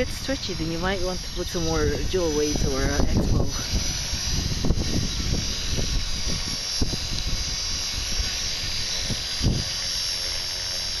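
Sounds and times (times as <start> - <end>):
rc helicopter motor whine: 0.0 - 11.0
rotor whirring: 0.0 - 11.0.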